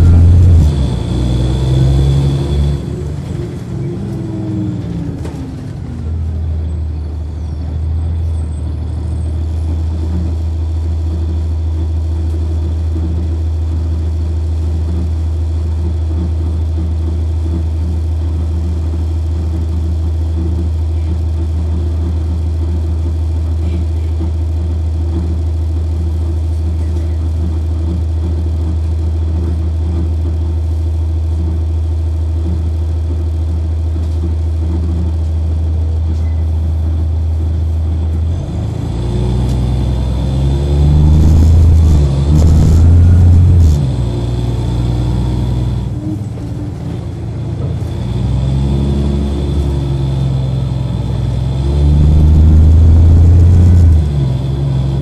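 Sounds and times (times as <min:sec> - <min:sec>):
diesel bus engine humming: 0:00.0 - 0:16.1, 0:36.5 - 0:55.0.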